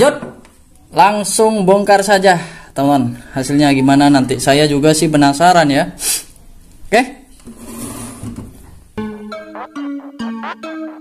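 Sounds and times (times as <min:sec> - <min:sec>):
plucked melody background music: 0:09.0 - 0:11.0.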